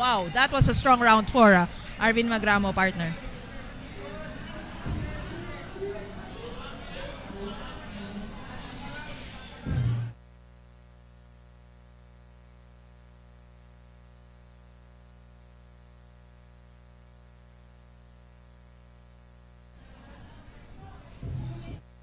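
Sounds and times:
mixed arena sound: 0:00.0 - 0:10.2
buzzy electrical mains hum: 0:00.0 - 0:22.0.

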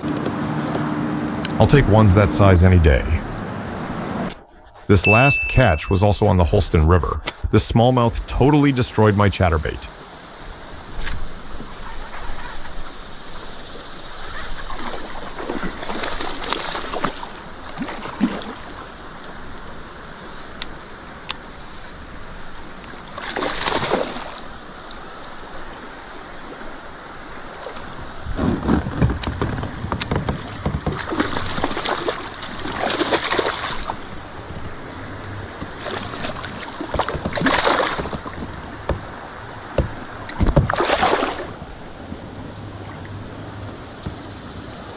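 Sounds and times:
water noise: 0:00.0 - 0:44.9
fish thrashing and splashing: 0:14.6 - 0:18.9, 0:23.2 - 0:24.5, 0:27.6 - 0:38.6, 0:40.3 - 0:41.5.

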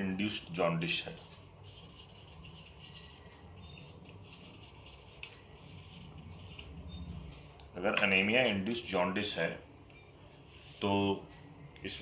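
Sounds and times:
low steady hum: 0:00.0 - 0:12.0
pen scratching on paper: 0:01.0 - 0:06.8.

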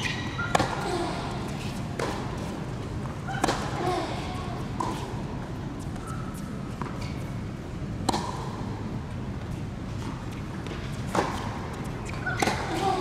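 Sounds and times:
low background hum: 0:00.0 - 0:13.0
racket hitting tennis ball: 0:00.4 - 0:03.9, 0:08.0 - 0:08.7, 0:11.1 - 0:13.0.

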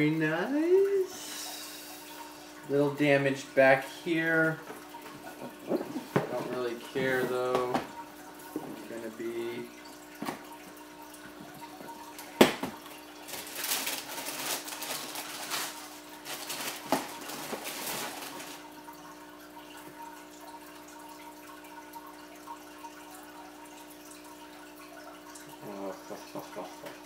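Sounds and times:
aquarium filter trickle and hum: 0:00.0 - 0:27.0
tissue paper rustling: 0:13.2 - 0:18.6.

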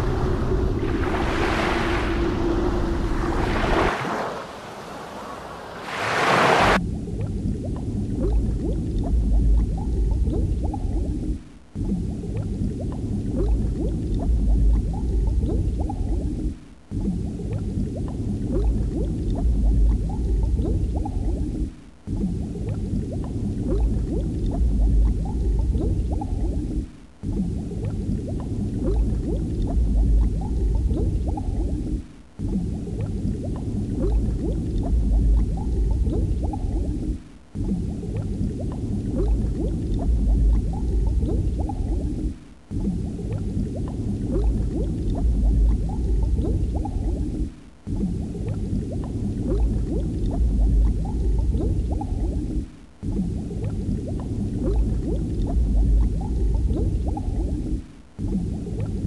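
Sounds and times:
heavy low rumble: 0:00.0 - 0:03.9
water bubbling and gurgling: 0:00.0 - 0:59.0.

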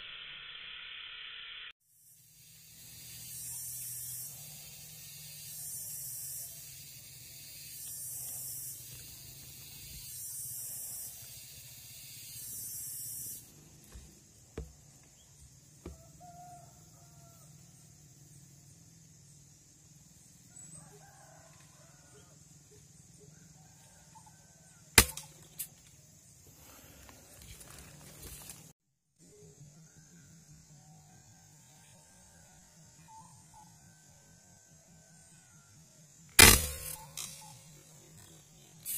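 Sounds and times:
rooster crowing faintly: 0:15.8 - 0:17.8, 0:20.5 - 0:22.5.

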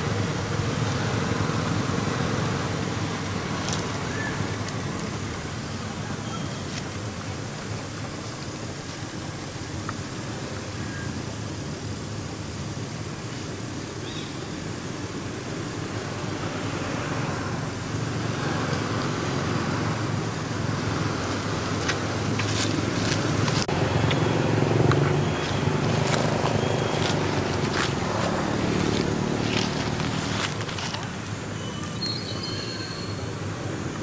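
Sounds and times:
road traffic noise: 0:00.0 - 0:34.0
vehicle hum: 0:00.0 - 0:34.0.

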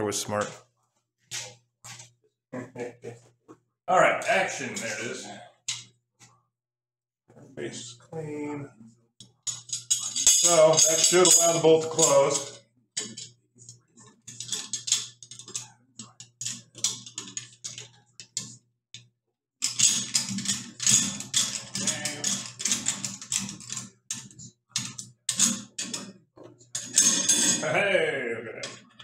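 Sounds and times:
small metal parts clicking: 0:09.2 - 0:27.7.

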